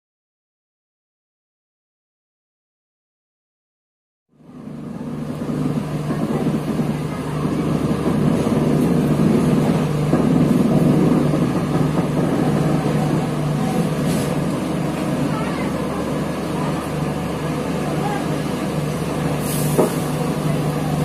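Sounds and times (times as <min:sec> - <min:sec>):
train wheels rumbling on track: 0:04.4 - 0:21.0.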